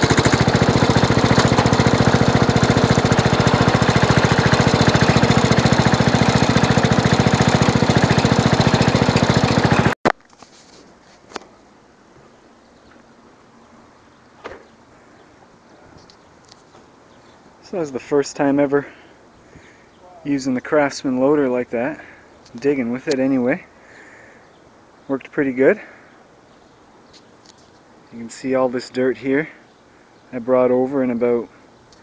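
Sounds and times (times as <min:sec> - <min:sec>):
garden tractor engine running: 0:00.0 - 0:10.0.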